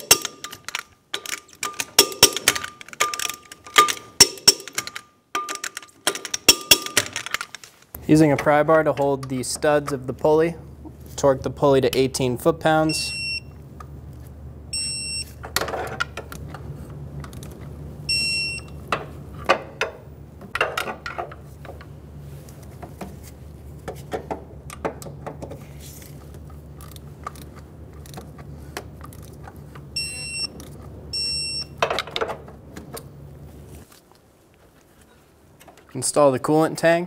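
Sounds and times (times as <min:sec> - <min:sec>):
metallic clicks and knocks: 0:00.0 - 0:10.1
steady low hum: 0:06.4 - 0:35.6.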